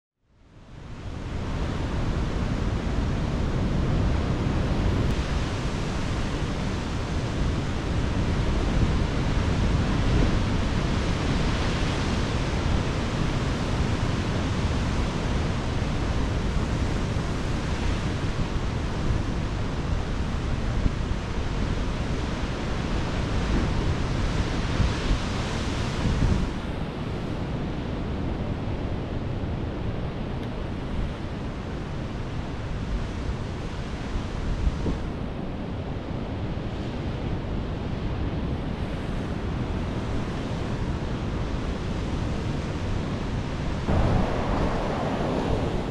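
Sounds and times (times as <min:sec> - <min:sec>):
wind buffeting microphone: 0:00.8 - 0:45.9
surf breaking on rocks: 0:43.9 - 0:45.9.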